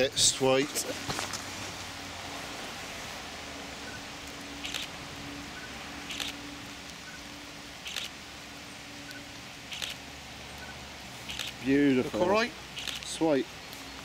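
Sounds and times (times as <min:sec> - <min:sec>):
camera shutter firing: 0:06.1 - 0:06.4, 0:09.7 - 0:10.0, 0:11.3 - 0:11.6, 0:12.8 - 0:13.1.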